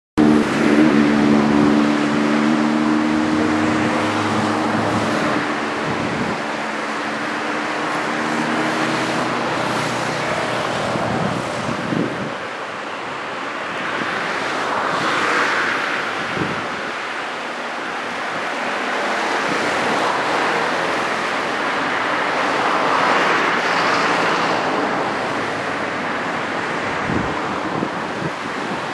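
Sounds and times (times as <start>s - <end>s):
vehicle engine humming: 0.2s - 14.8s
surf rushing: 0.2s - 28.9s
wind: 0.2s - 28.9s.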